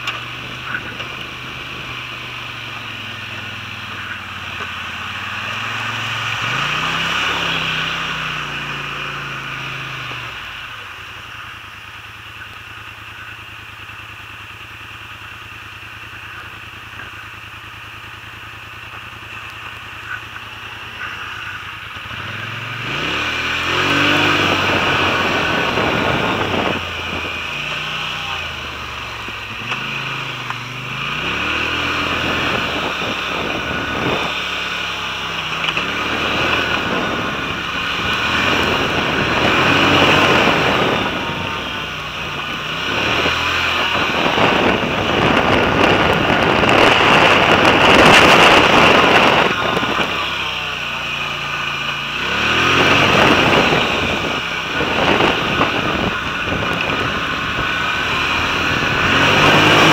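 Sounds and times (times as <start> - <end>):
atv engine revving and idling: 0.0 - 59.9.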